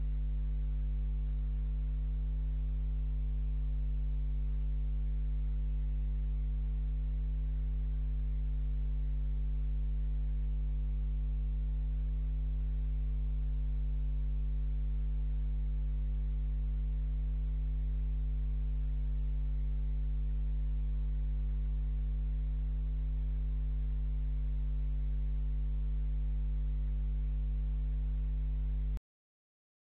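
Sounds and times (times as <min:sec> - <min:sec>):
low electrical hum: 0:00.0 - 0:29.0.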